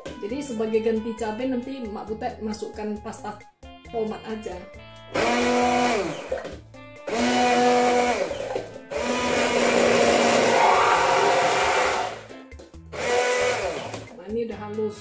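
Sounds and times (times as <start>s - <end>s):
electric blender grinding: 5.1s - 6.4s, 7.0s - 12.3s, 12.9s - 14.1s.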